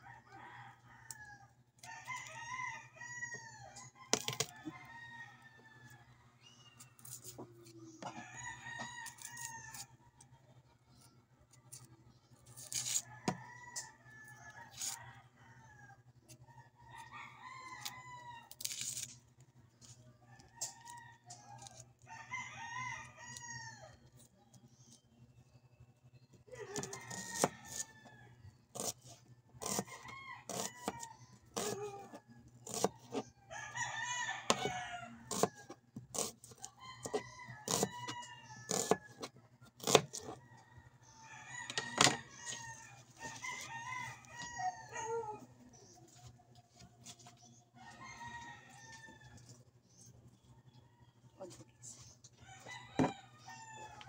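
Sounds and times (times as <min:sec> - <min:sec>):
rooster crowing: 0:00.0 - 0:06.2, 0:08.0 - 0:09.9, 0:16.8 - 0:18.7, 0:20.4 - 0:24.0, 0:26.5 - 0:28.9, 0:32.8 - 0:35.8, 0:36.7 - 0:39.3, 0:39.9 - 0:45.5, 0:47.8 - 0:49.5, 0:52.4 - 0:54.0.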